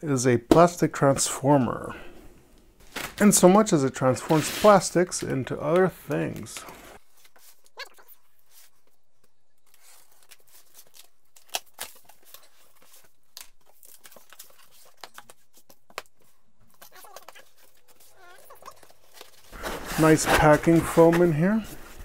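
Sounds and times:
cardboard rustling: 0:02.8 - 0:22.0
packing tape cut and torn: 0:09.7 - 0:12.6
cardboard flaps folded back: 0:19.1 - 0:22.0.

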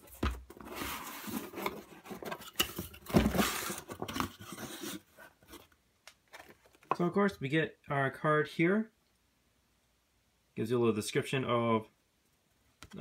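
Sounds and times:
cardboard flaps scraping: 0:00.0 - 0:05.6.

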